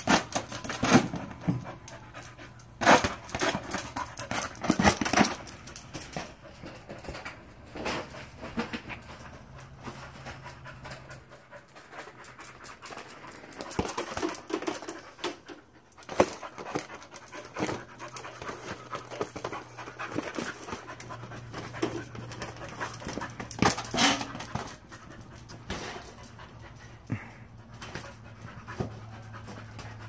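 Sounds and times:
ball and paws knocking on concrete: 0.0s - 30.0s
dog panting: 0.8s - 7.2s, 8.0s - 30.0s.

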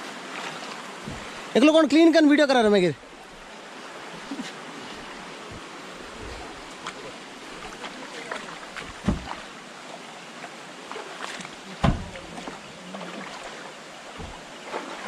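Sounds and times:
river water running over rocks: 0.0s - 15.0s
low thump: 1.0s - 1.4s, 8.9s - 9.4s, 11.8s - 12.3s, 14.2s - 14.5s.

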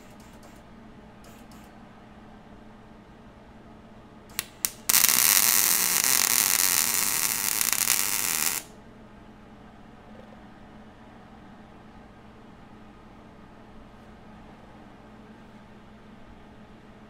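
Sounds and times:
welder arc crackling hiss: 4.3s - 8.7s
welder arc sputtering: 4.3s - 8.7s.

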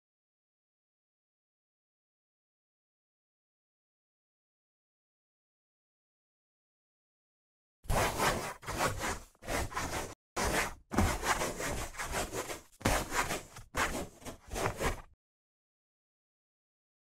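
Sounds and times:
pen scratching on paper: 7.9s - 15.1s.

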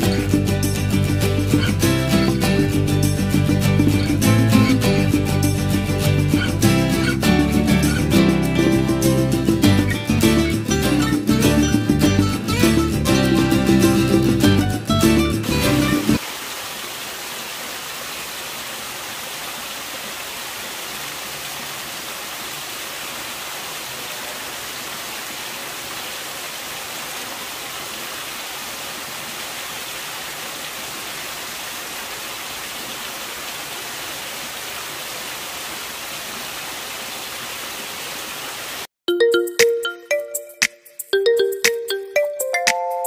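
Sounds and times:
guitar music: 0.0s - 16.2s
fountain water splashing into pool: 16.1s - 38.9s.

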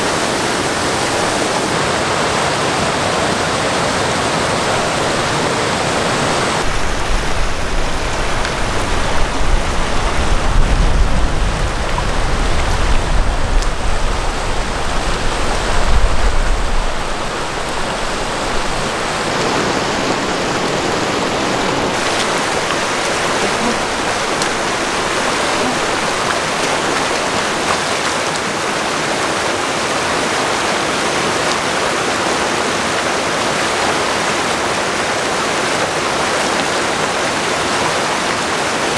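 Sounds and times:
creek water rushing over rocks: 0.0s - 38.9s
deep uneven rumble: 6.6s - 28.4s.

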